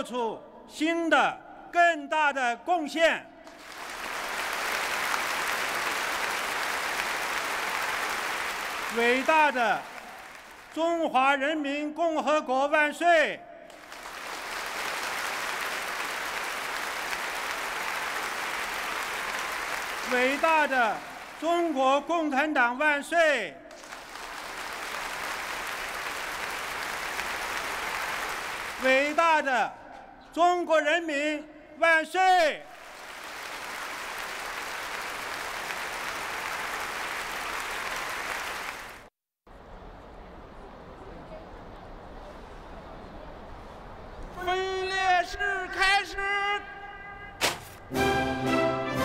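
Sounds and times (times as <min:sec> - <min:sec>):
large crowd applauding: 0:03.4 - 0:10.8, 0:13.7 - 0:22.1, 0:23.7 - 0:29.5, 0:32.5 - 0:39.1.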